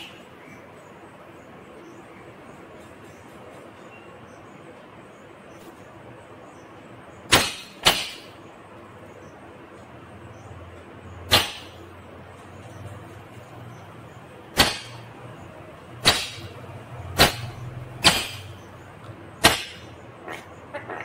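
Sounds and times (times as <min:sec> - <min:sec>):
parakeet soft chattering calls: 0:19.8 - 0:21.0.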